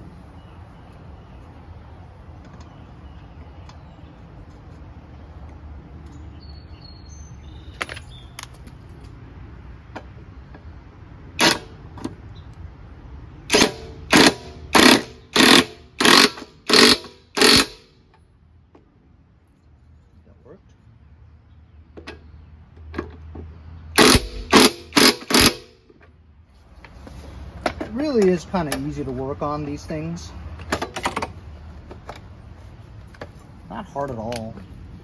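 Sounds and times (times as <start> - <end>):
impact wrench bursts: 11.4 - 11.8, 13.4 - 18.0, 23.9 - 25.8.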